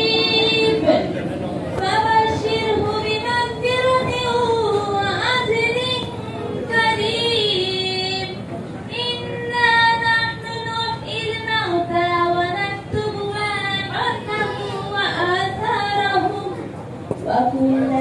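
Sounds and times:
child chanting melodically: 0:13.1 - 0:16.6.

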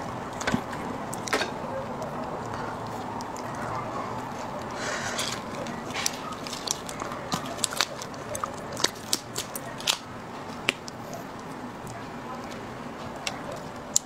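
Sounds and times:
crustacean shell cracking: 0:04.7 - 0:11.6.

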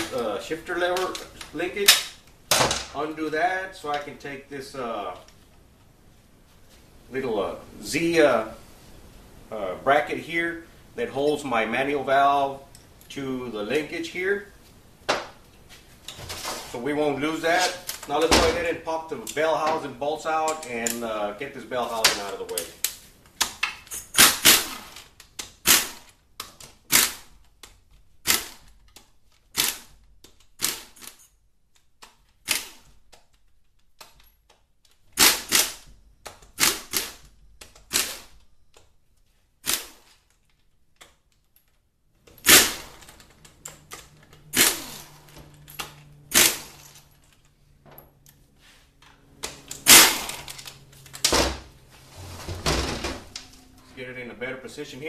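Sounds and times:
impact wrench rattling: 0:42.3 - 0:47.4.

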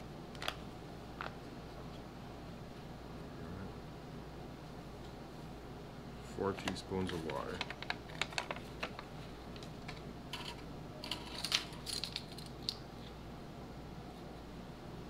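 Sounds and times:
low steady hum: 0:00.0 - 0:15.0
utensils clinking: 0:10.3 - 0:12.8.

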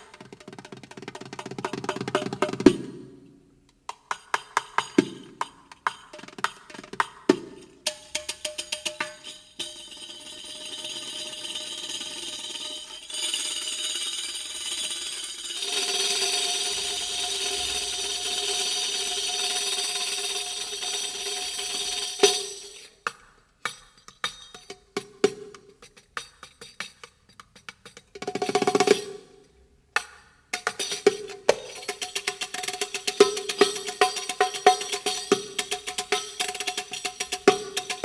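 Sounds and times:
tambourine jingles rolling: 0:08.5 - 0:22.9.

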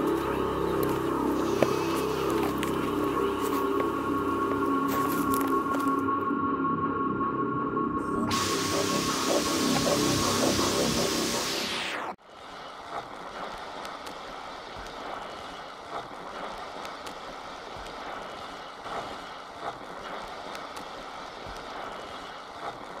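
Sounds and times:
steady hiss: 0:00.0 - 0:06.0, 0:08.0 - 0:23.0
faint clicks and crackles: 0:12.3 - 0:23.0.

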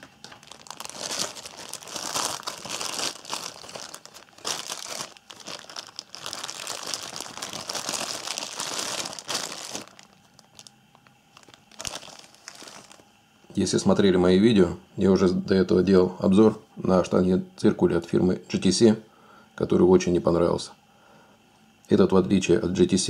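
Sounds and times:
cellophane crinkling: 0:00.0 - 0:13.0.

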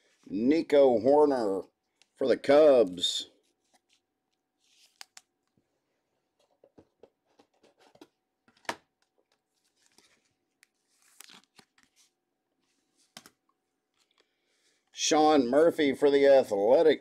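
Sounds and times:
cards rustling in plastic sleeves: 0:03.3 - 0:05.6, 0:09.0 - 0:14.8.

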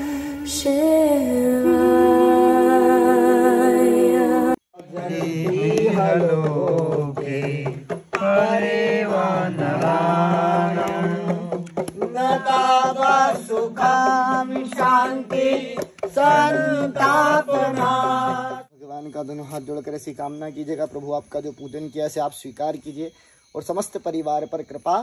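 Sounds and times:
men chanting: 0:04.4 - 0:18.7.

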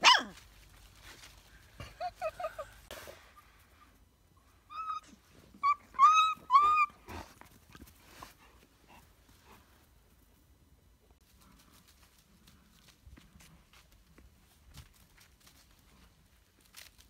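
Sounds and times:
puppy whining: 0:04.7 - 0:07.3.

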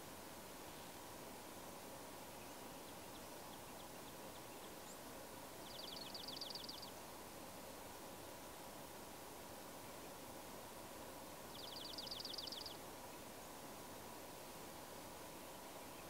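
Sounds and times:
faint outdoor hiss: 0:00.0 - 0:16.0
songbird trilling: 0:05.6 - 0:06.9, 0:11.5 - 0:12.8.

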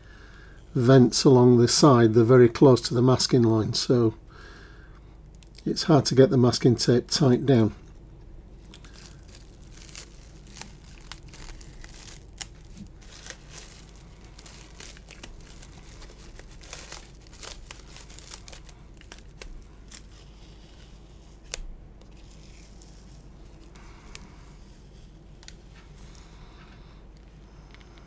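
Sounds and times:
tape and plastic wrap peeling: 0:08.6 - 0:26.4.

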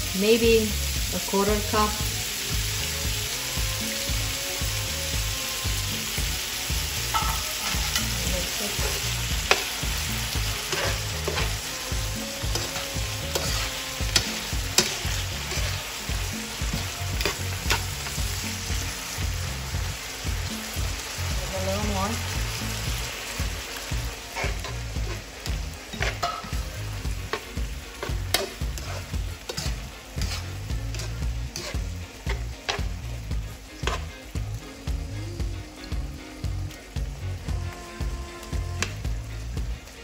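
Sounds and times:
food sizzling in a frying pan: 0:00.0 - 0:40.0
utensil scraping a pan: 0:07.1 - 0:18.2, 0:24.2 - 0:33.0, 0:33.7 - 0:34.1.

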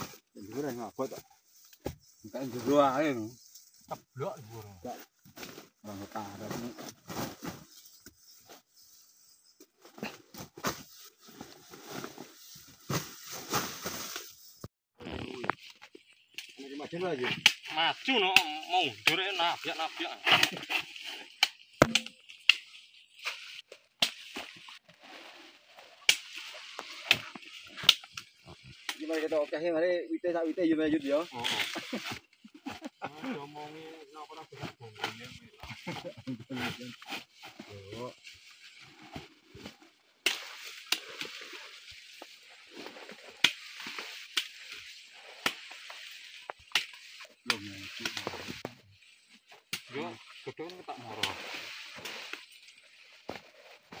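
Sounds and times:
sickle chopping roots: 0:24.0 - 0:24.5, 0:26.1 - 0:29.2, 0:40.2 - 0:41.4, 0:46.6 - 0:48.8.

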